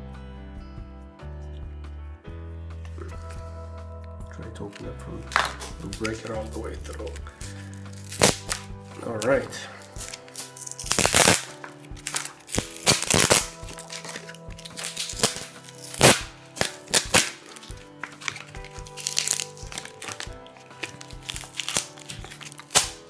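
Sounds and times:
background music: 0:00.0 - 0:23.0
plastic wrapping crinkling: 0:04.7 - 0:23.0.

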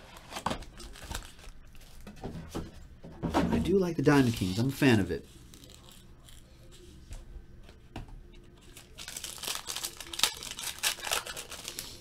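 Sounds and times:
foil wrapper crinkling and tearing: 0:00.0 - 0:02.0, 0:04.1 - 0:04.8, 0:08.6 - 0:12.0.

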